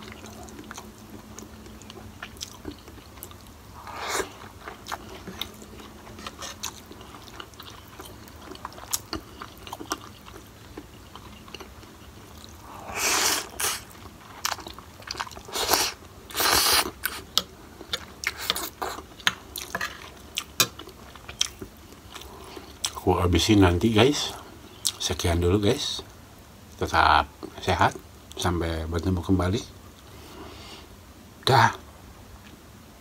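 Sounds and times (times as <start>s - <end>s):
wet chewing clicks and smacks: 0.0s - 3.6s, 4.6s - 12.6s, 17.0s - 23.0s
loud slurping of noodles: 3.8s - 4.4s, 12.6s - 13.9s, 15.5s - 17.2s.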